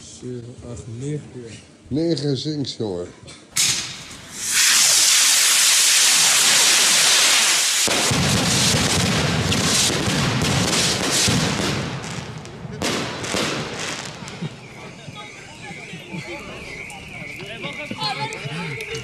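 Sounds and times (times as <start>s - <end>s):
firework hissing: 3.6s - 14.5s
fireworks launching and bursting: 3.6s - 15.2s.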